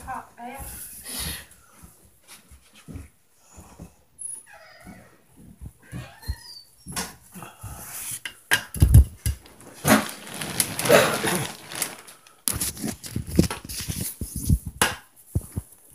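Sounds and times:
rustling: 8.8s - 14.7s.

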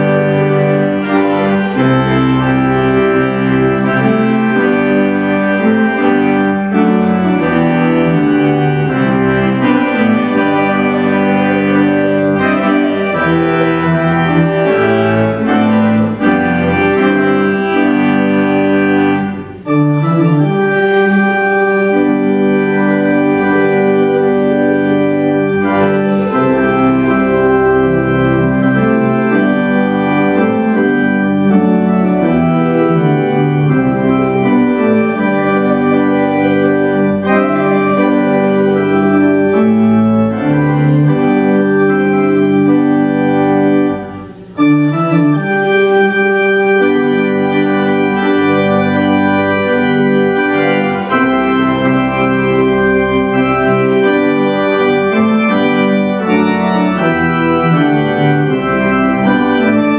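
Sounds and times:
church organ playing chords: 0.0s - 59.9s.

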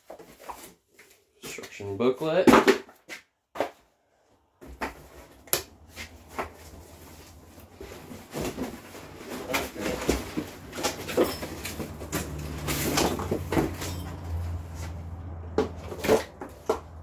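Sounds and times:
cardboard rustling scrapes: 5.0s - 15.1s.

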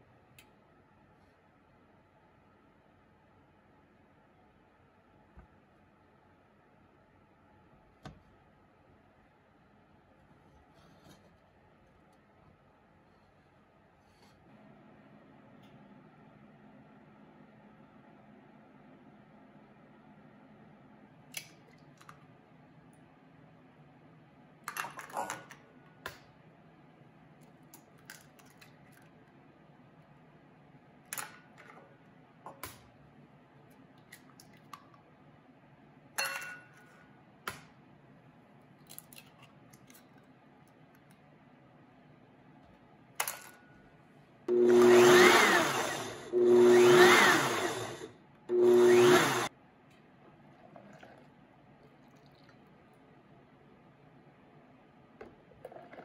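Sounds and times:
blender running: 44.5s - 49.5s.

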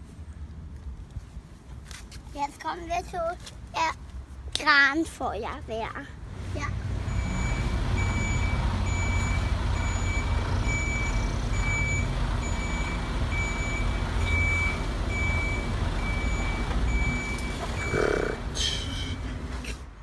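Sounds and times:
low diesel engine rumble: 6.2s - 20.0s
truck reversing alarm beeping: 7.0s - 19.5s.

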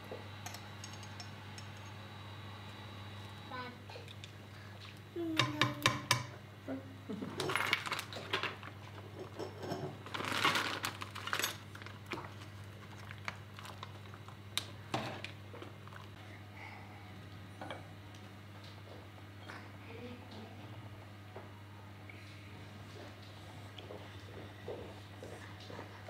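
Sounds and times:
dumplings clattering: 7.2s - 14.4s
plastic bag rustling: 7.5s - 9.1s, 9.7s - 14.4s.

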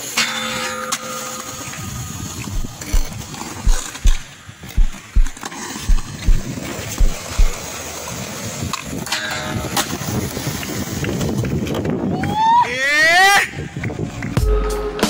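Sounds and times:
background music with kick drum: 2.5s - 3.1s, 3.7s - 7.6s.

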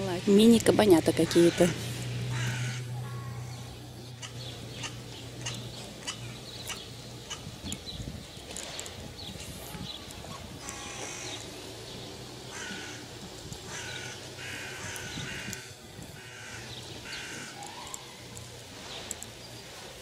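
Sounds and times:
bird cawing: 1.2s - 7.5s, 10.6s - 11.6s, 12.5s - 18.4s.

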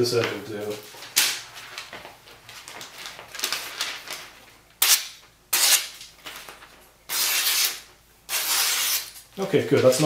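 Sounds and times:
paper rustling: 0.2s - 4.7s, 6.0s - 7.7s
knife slicing paper: 7.1s - 9.2s.

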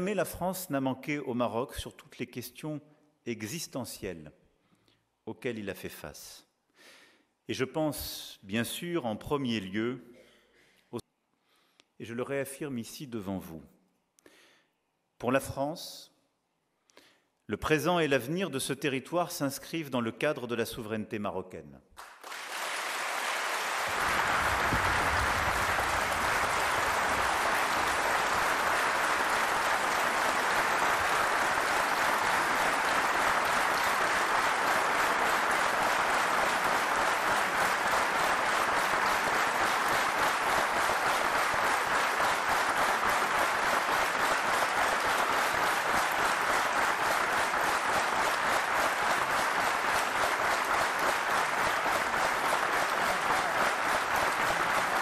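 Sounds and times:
large audience applause: 22.0s - 55.0s.

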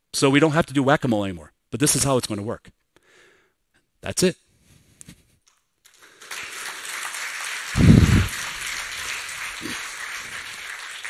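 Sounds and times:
audience applauding: 5.9s - 11.0s
low burst: 7.8s - 8.4s.

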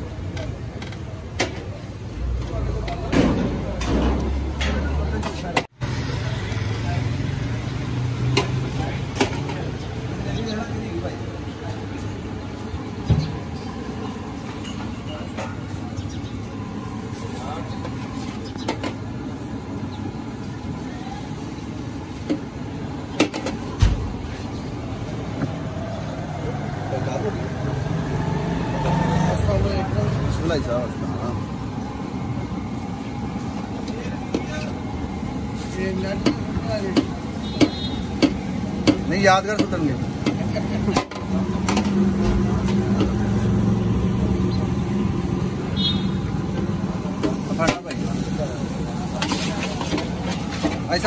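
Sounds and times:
engine humming steadily: 0.0s - 51.0s
street traffic din: 0.0s - 51.0s.

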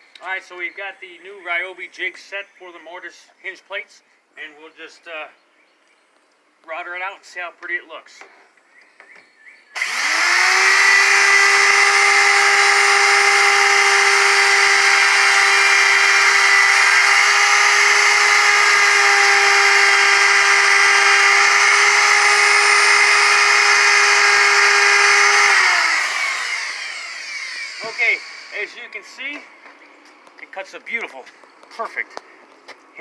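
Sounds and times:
electric router whining: 9.8s - 29.4s.

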